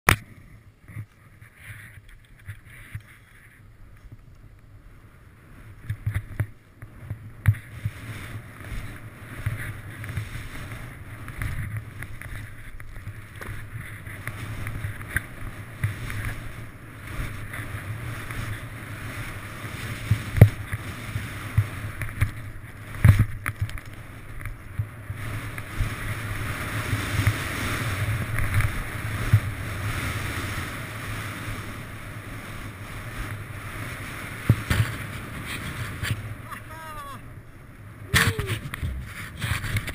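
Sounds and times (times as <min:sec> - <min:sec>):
skis swishing through powder snow: 0:05.0 - 0:37.1
skis and poles knocking: 0:08.6 - 0:16.5, 0:38.1 - 0:39.9
wind buffeting microphone: 0:37.7 - 0:39.9.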